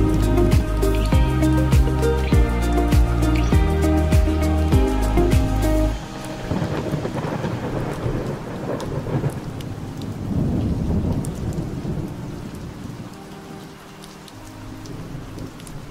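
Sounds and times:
rain falling: 0.0s - 15.9s
rolling thunder: 6.4s - 12.6s.

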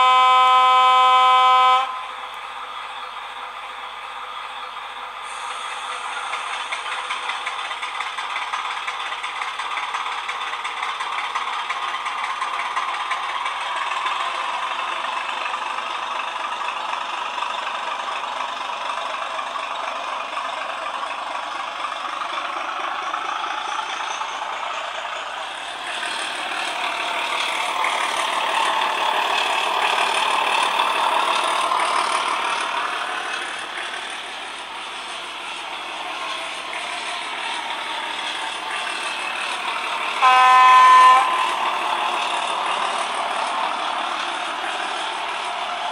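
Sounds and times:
diesel engine sound from speaker: 0.0s - 45.9s
model train wheels rattling: 4.1s - 40.2s.

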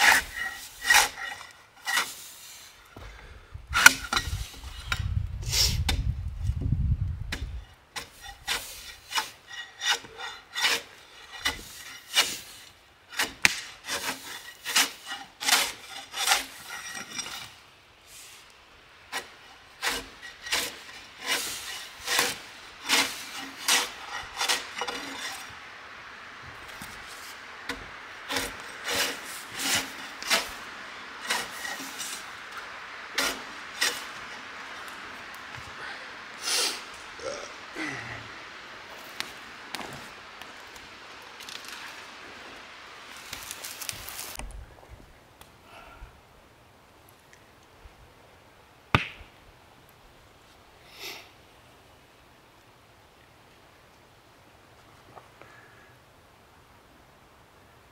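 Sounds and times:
bark scraped off a log: 0.0s - 2.6s, 7.3s - 17.6s, 19.1s - 25.5s, 27.1s - 30.6s, 31.2s - 32.3s, 33.2s - 34.2s
steady hiss: 0.0s - 6.6s, 7.7s - 57.9s.

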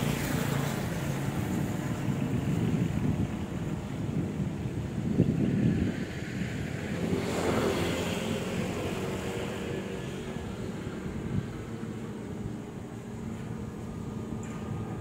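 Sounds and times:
vehicle engine rumbling: 8.4s - 15.0s.

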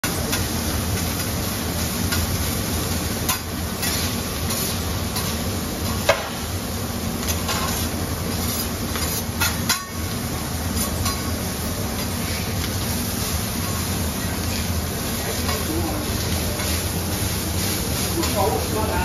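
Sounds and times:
meat sizzling on a griddle: 0.0s - 19.0s
metal spatulas scraping and tapping: 3.3s - 6.3s, 7.2s - 10.0s, 10.8s - 11.3s.

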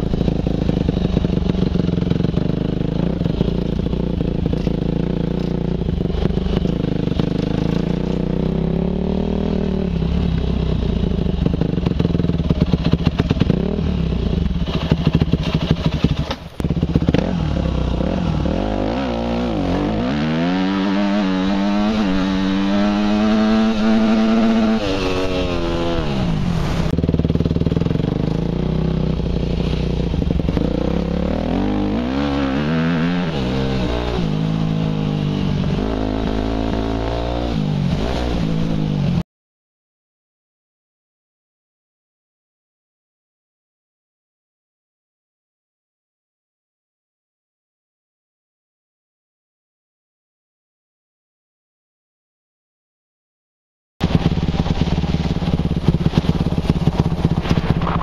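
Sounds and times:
dirt bike engine revving: 0.0s - 39.2s, 54.0s - 58.0s.

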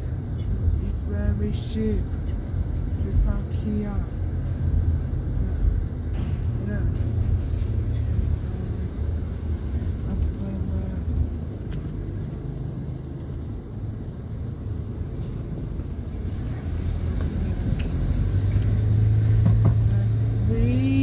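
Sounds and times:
car engine and tyre rumble: 0.0s - 21.0s.

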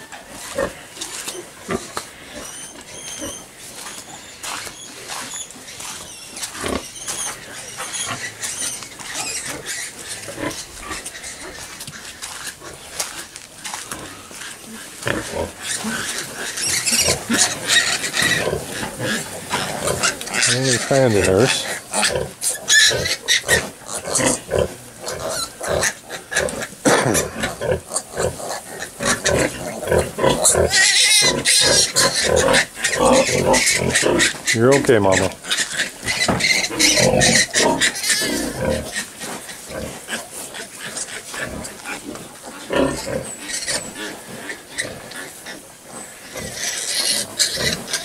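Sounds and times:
sow grunting: 15.0s - 39.0s
piglet squealing: 20.0s - 23.6s, 30.7s - 32.2s.

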